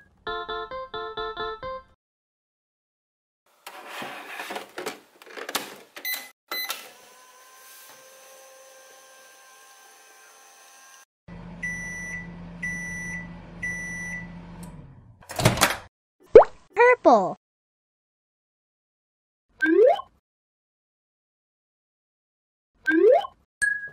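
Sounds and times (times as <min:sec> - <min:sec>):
toy microwave beeps: 0:06.0 - 0:06.8, 0:11.6 - 0:14.4
toy microwave humming: 0:06.5 - 0:14.8
plastic door clatter: 0:15.3 - 0:15.9.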